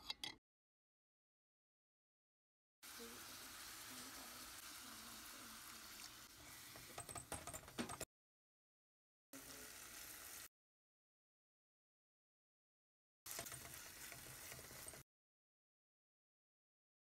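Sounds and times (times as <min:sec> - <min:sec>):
spoon stirring clicks and scrapes: 0:13.3 - 0:15.0.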